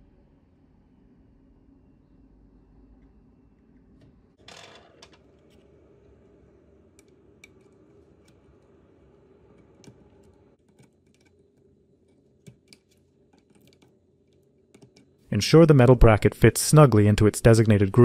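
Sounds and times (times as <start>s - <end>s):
small clicks and taps of parts: 9.6s - 15.1s.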